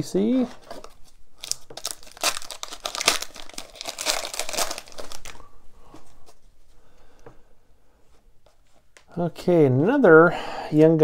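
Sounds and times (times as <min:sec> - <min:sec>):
foil wrapper crinkling: 0:00.7 - 0:05.4.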